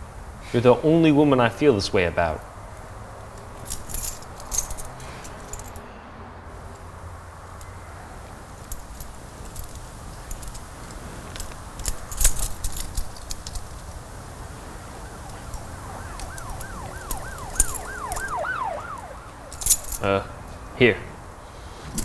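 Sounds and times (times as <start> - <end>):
keys jingling on key ring: 3.3 - 5.9, 8.5 - 14.1, 15.2 - 20.1
siren yelping: 14.8 - 19.8.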